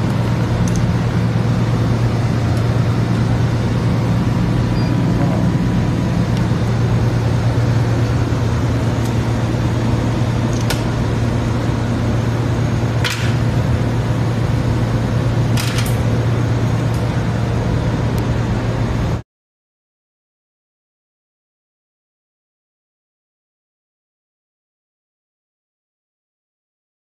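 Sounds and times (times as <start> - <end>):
low hum of machinery: 0.0 - 19.2.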